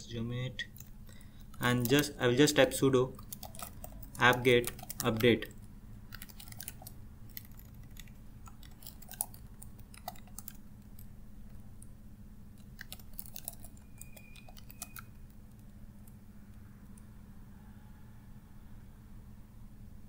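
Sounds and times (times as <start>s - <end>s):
low steady hum: 0.0s - 20.0s
computer keys clicking: 0.6s - 12.0s, 12.6s - 17.1s.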